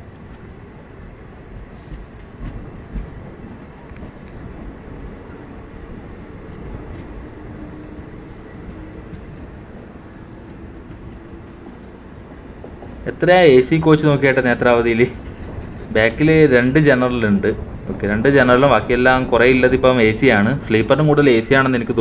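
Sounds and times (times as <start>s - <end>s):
train coach clanks: 0.0s - 22.0s
train wheels rumbling on rails: 0.0s - 22.0s.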